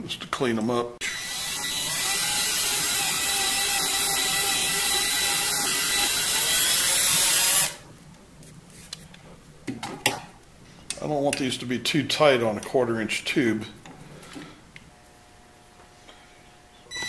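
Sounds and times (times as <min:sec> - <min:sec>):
power drill whirring: 0:01.0 - 0:07.8.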